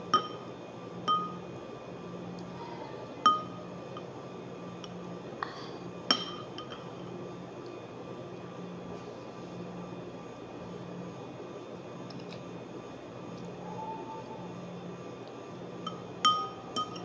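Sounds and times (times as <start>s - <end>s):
metal spoon clinking ceramic bowl: 0.1s - 0.4s, 1.1s - 1.4s, 3.2s - 3.6s, 15.8s - 17.0s.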